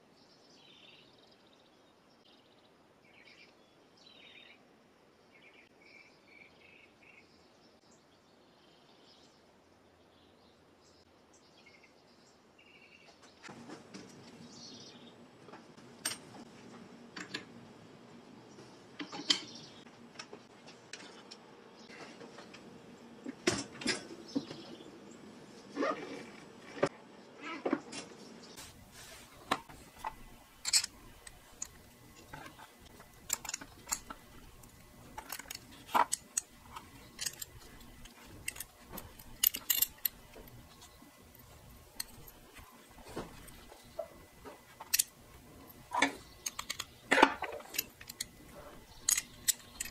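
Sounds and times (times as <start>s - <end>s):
small metal parts clinking: 29.4s - 49.9s.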